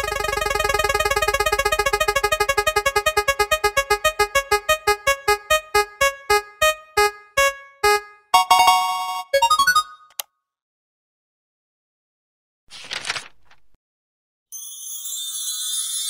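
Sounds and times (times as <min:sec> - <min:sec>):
chime: 0:14.6 - 0:16.0.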